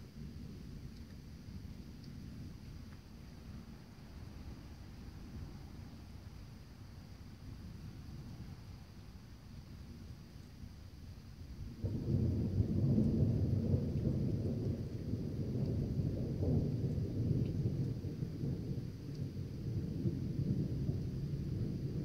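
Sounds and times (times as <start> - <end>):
rolling thunder: 11.7 - 22.0.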